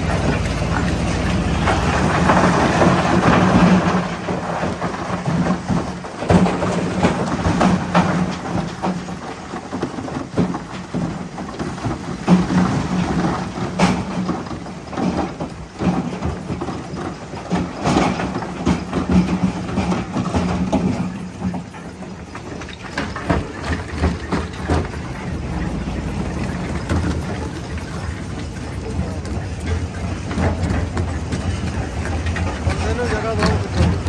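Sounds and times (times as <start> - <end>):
rocks cracking in crusher: 0.0 - 34.0
crusher machine drone: 23.5 - 34.0.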